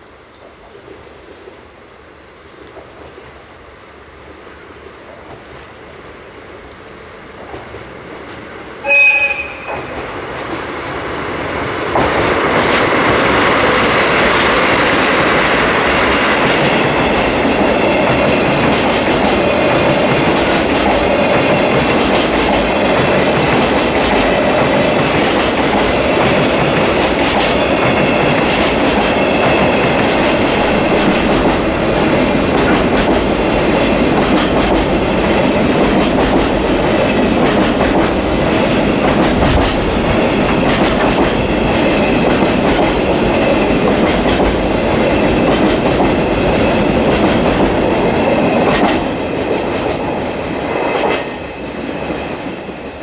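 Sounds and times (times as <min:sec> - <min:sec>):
diesel locomotives passing: 0:00.0 - 0:53.0
locomotive horn blast: 0:08.8 - 0:09.9
wheels clicking over rail joints: 0:16.3 - 0:51.3.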